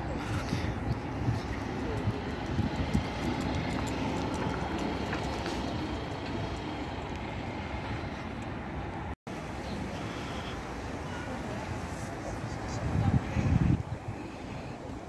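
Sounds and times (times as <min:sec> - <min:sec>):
low outdoor rumbling: 0:00.0 - 0:09.2.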